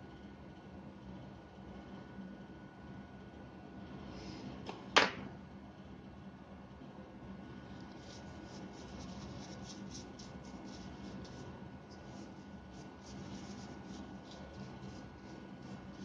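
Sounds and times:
steady low hum: 0.0 - 16.0
brush bristles scrubbing plastic: 7.7 - 16.0.

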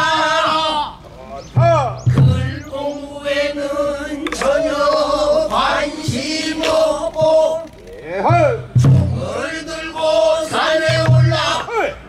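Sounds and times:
voices singing long wavering notes: 0.0 - 8.2.

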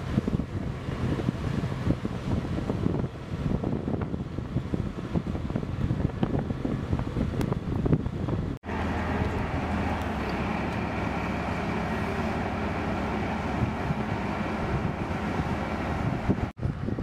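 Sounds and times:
tracked vehicle engine rumble: 0.0 - 17.0
wind on microphone: 0.0 - 17.0
low hum: 7.0 - 17.0.

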